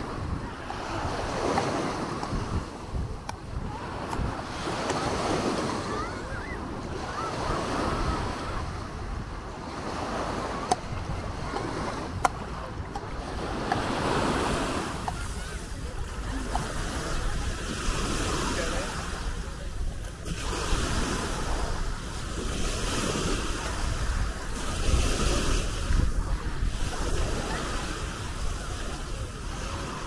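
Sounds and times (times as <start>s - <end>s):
small waves washing onto shore: 0.0s - 30.0s
voices in background: 0.0s - 30.0s
wind on microphone: 0.0s - 30.0s.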